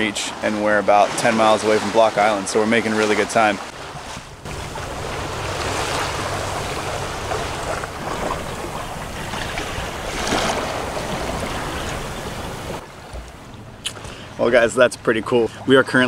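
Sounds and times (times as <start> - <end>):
water rushing past a hull: 0.0 - 16.0
wind buffeting the microphone: 3.8 - 13.2.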